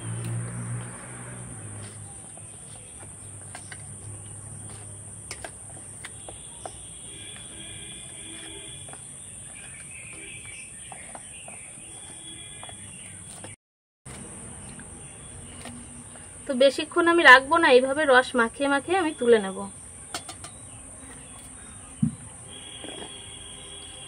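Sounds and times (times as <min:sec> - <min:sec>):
crickets droning: 0:00.0 - 0:13.1
spoon clinking against steel bowl: 0:20.1 - 0:20.6.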